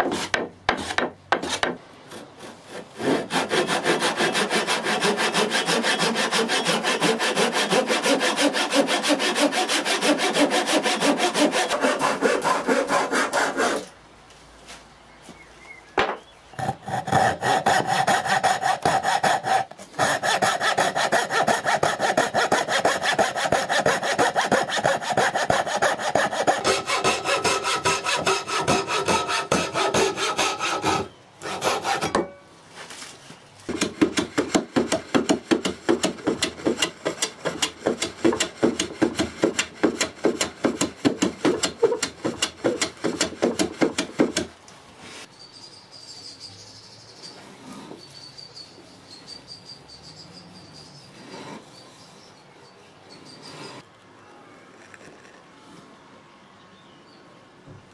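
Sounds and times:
hand saw cutting wood: 0.0s - 13.9s, 16.6s - 32.2s, 33.7s - 44.5s.

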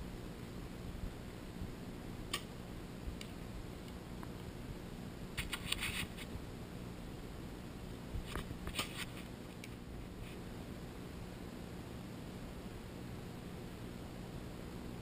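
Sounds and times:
bow string snap: 2.3s - 2.5s.

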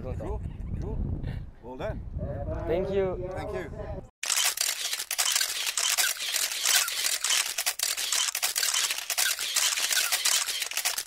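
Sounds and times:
camera shutter burst: 4.2s - 11.0s.

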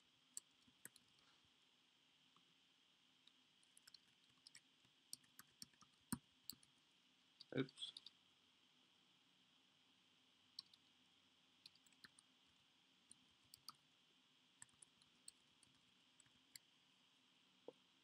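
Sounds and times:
keyboard typing clicks: 10.6s - 10.8s, 11.7s - 12.2s.

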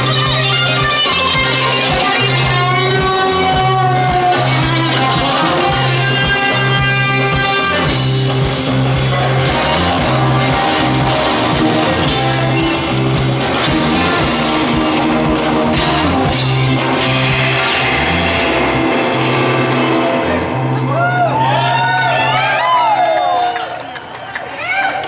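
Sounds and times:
drum kit: 0.0s - 22.0s
bass line: 0.0s - 23.0s
electric guitars: 0.0s - 23.9s.

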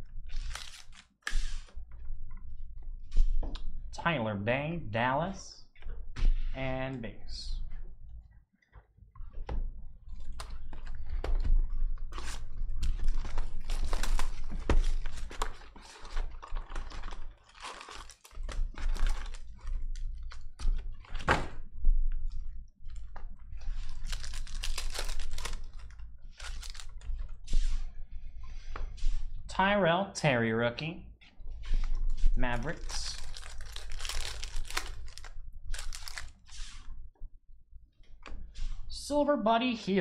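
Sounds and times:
wrappers tearing and crinkling: 0.2s - 1.7s, 12.2s - 21.2s, 23.6s - 27.0s, 32.5s - 36.8s
cards clicking and rustling: 0.3s - 1.6s, 23.8s - 27.0s, 32.7s - 36.4s.

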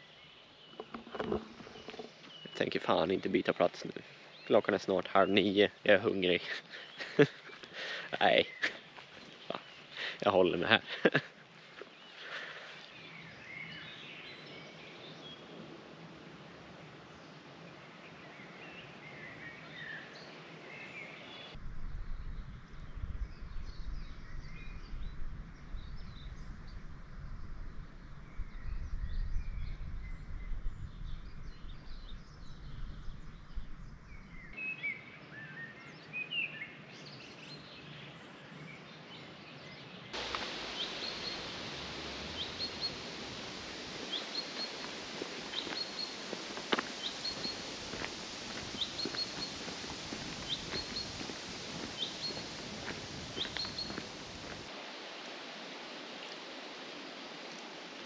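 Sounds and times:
birds chirping and singing: 0.0s - 11.2s, 39.9s - 54.6s
outdoor hiss: 0.0s - 21.6s, 36.9s - 58.0s.

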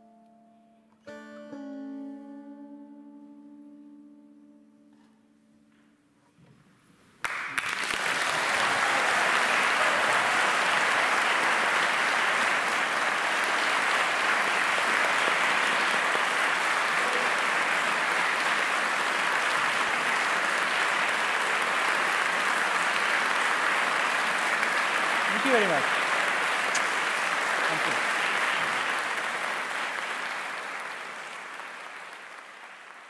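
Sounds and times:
audience applause: 7.2s - 33.0s.

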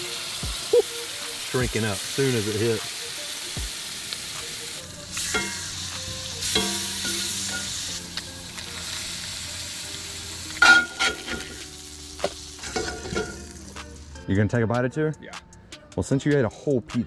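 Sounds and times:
fish sizzling in a pan: 0.0s - 14.2s
metal spatula scraping a pan: 10.6s - 11.6s, 12.6s - 13.4s.

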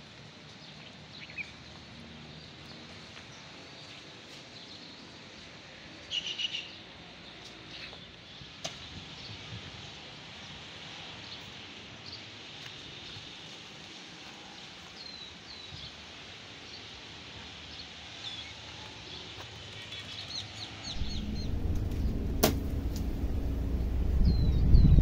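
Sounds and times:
loud low steady hum: 20.9s - 25.0s.

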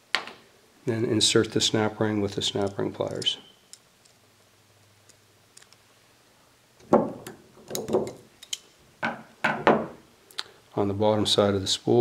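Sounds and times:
sharp metal clicks and knocks: 6.8s - 8.7s.

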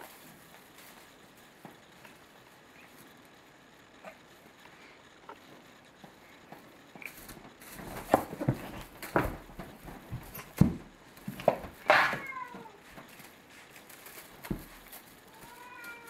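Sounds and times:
kitten thumping and rustling: 6.5s - 16.0s
kitten meowing: 15.4s - 16.0s.

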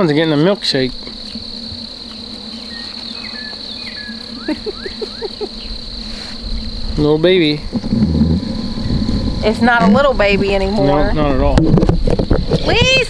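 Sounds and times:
high-pitched insect drone: 0.0s - 13.0s
faint whistled bird chirps: 2.6s - 5.7s.

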